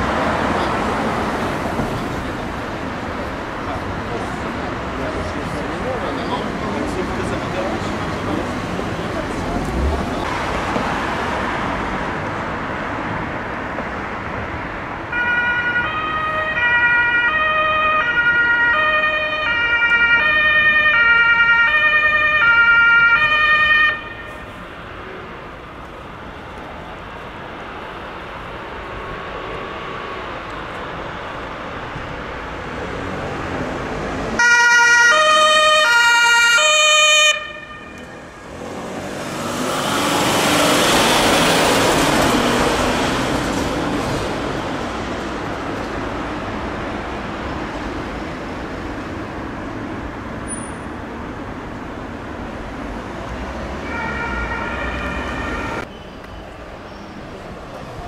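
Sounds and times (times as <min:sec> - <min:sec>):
traffic noise: 0:00.0 - 0:58.0
two-tone ambulance siren: 0:15.1 - 0:24.6, 0:34.4 - 0:38.5, 0:53.8 - 0:55.9
vehicle passing close: 0:37.3 - 0:50.3.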